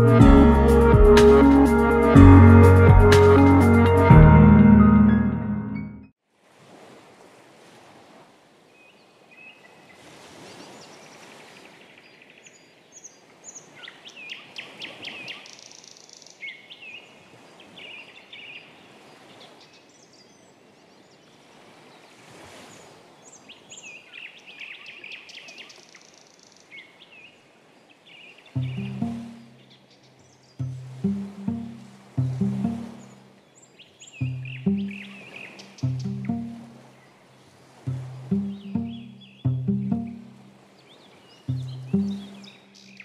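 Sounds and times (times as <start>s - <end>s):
birdsong over speakers: 32.9s - 36.4s, 40.8s - 43.0s.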